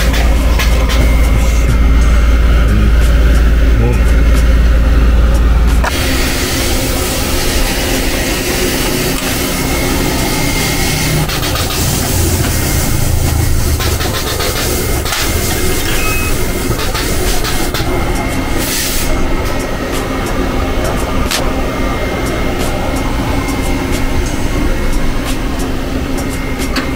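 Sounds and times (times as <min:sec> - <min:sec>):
spot welder humming and hissing: 0:00.0 - 0:26.9.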